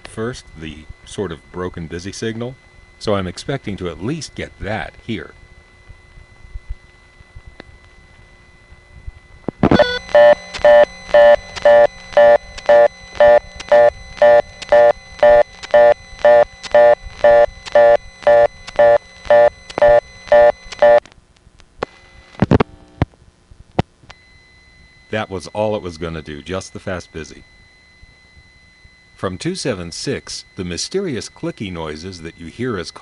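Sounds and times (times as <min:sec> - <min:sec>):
telephone line hiss: 0:00.1 - 0:21.0, 0:24.1 - 0:33.0
telephone line click: 0:09.5 - 0:21.0
telephone fast busy signal: 0:09.6 - 0:21.0.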